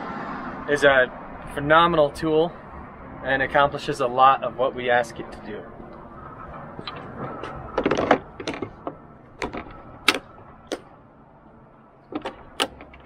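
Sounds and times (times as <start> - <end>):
tool clicking into brackets: 12.1 - 13.0.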